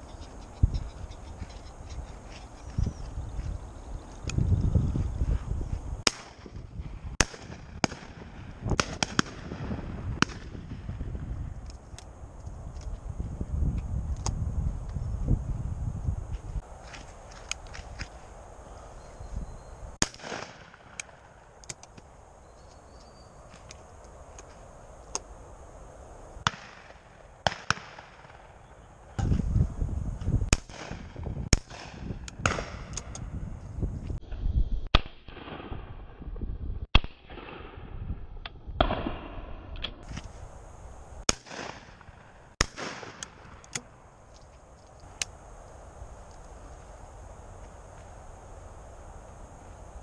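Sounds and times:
shotgun shots: 6.0s - 6.6s, 7.2s - 10.9s, 20.0s - 21.2s, 26.4s - 28.6s, 30.5s - 32.9s, 34.9s - 36.0s, 36.9s - 37.8s, 41.3s - 43.6s.

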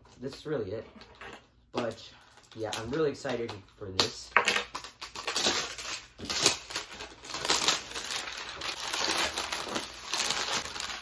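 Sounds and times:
plastic shrink wrap crinkling: 4.6s - 11.0s.

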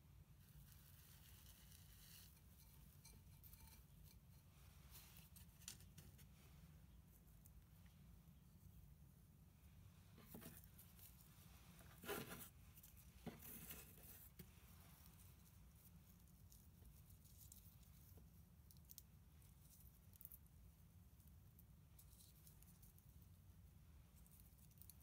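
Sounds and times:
low background hum: 0.0s - 25.0s
potting mix crunching and scraping: 10.2s - 15.5s.

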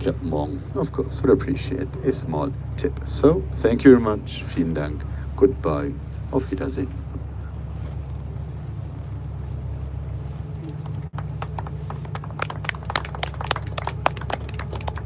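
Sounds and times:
boat engine humming: 0.0s - 15.0s
people clapping: 10.6s - 15.0s.

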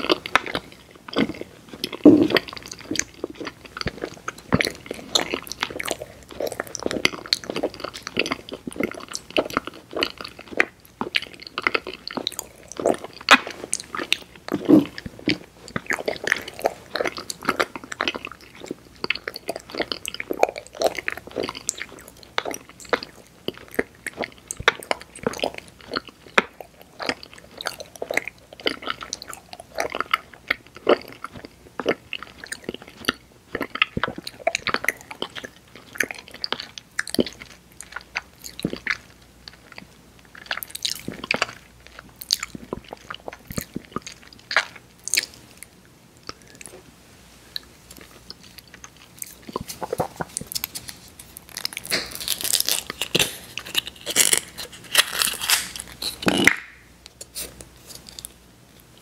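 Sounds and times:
chewing and biting candy: 0.0s - 46.8s, 47.6s - 59.0s.

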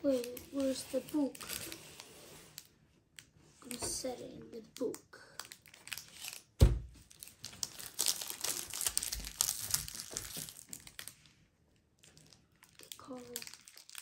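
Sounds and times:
foil wrapper crinkling: 0.0s - 2.7s, 4.8s - 11.4s, 12.0s - 14.0s
low thump: 6.6s - 6.9s.

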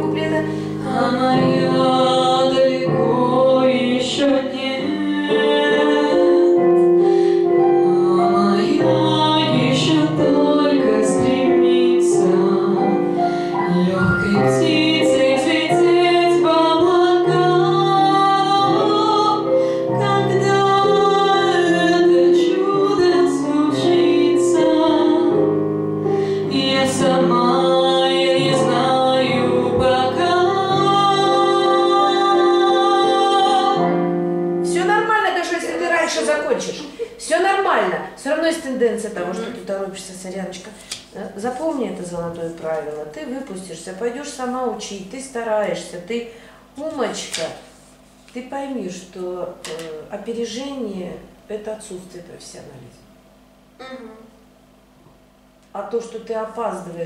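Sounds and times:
woman singing: 0.0s - 25.6s, 26.3s - 35.8s
grand piano accompaniment: 0.0s - 39.7s.

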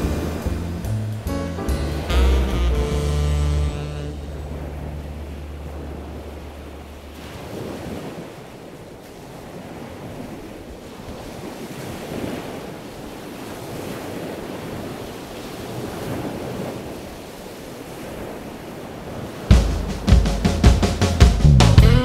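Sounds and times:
sea waves washing in: 0.0s - 21.8s
wind noise: 3.8s - 19.5s.

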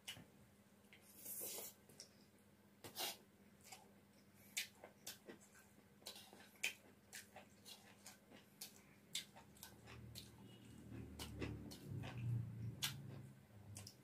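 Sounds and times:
chewing food: 3.6s - 14.0s.

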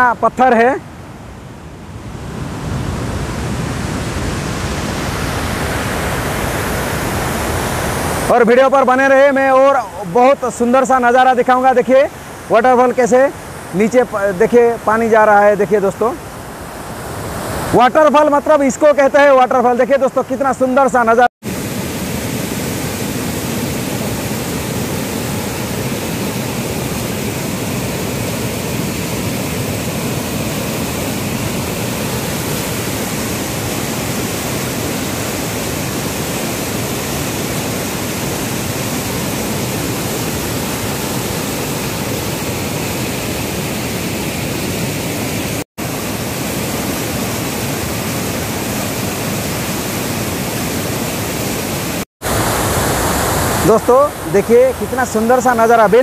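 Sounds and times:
waterfall rushing over rocks: 2.2s - 56.0s.

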